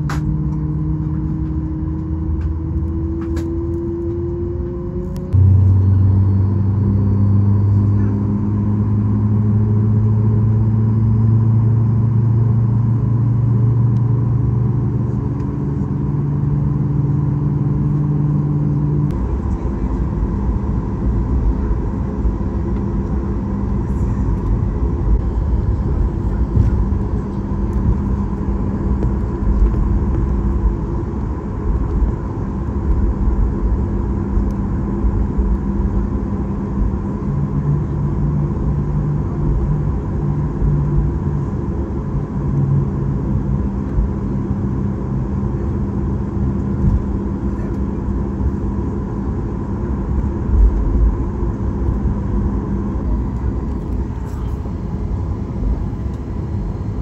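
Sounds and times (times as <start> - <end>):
deeper hum: 0.0 - 57.0
low cabin rumble with bumps: 0.0 - 57.0
steady hum: 0.0 - 57.0
faint high whine: 5.1 - 8.8.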